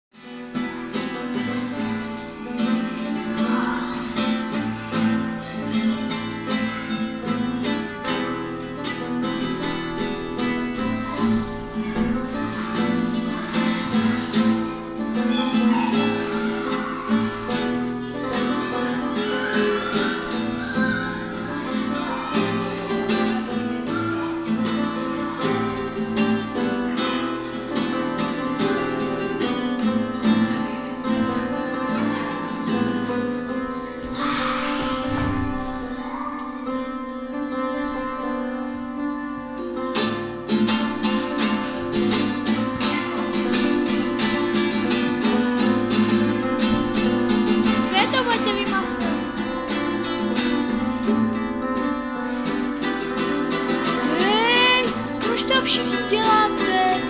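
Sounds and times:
classical guitar: 0.1s - 57.0s
piano: 0.2s - 57.0s.

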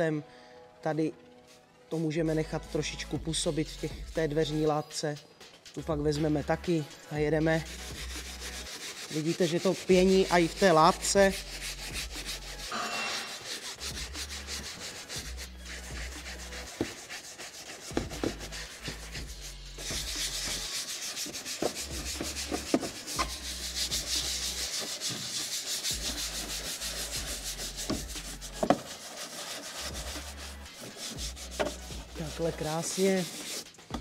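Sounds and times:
brush scrubbing fabric: 7.5s - 33.7s
brush knocking panel: 15.9s - 34.0s.

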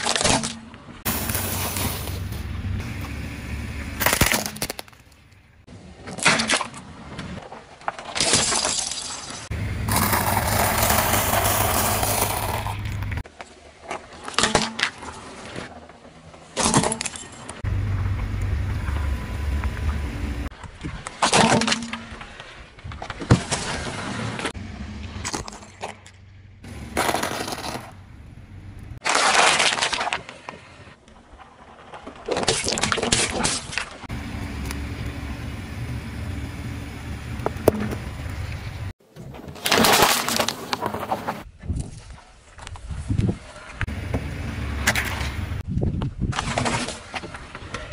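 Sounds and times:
car rumble: 1.1s - 4.3s, 9.5s - 13.2s, 17.6s - 20.5s, 24.6s - 29.0s, 34.1s - 39.0s, 43.9s - 45.6s.

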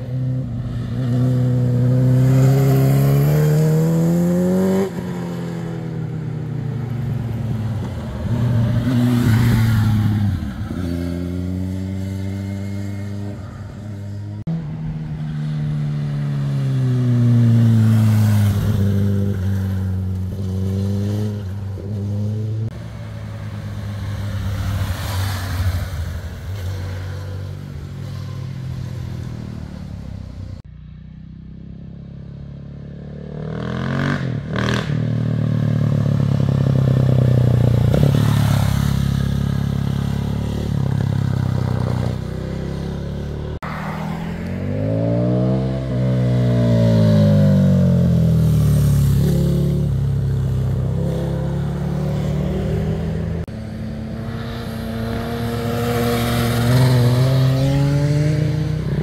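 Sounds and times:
motorcycle approaching: 0.0s - 59.0s
motorcycle engines revving: 0.0s - 59.0s.

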